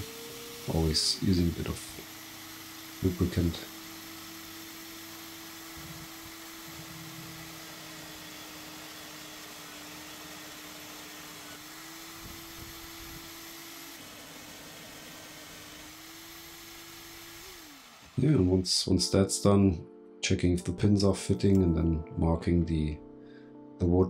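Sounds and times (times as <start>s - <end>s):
drill cutting through steel: 0.0s - 18.6s
drill press humming: 0.0s - 18.6s.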